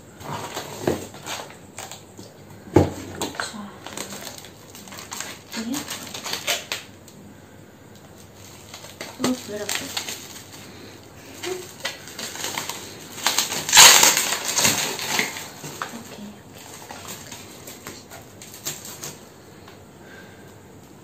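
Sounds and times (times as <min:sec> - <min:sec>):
bubble wrap rustling and crinkling: 0:00.0 - 0:07.2, 0:07.9 - 0:19.9.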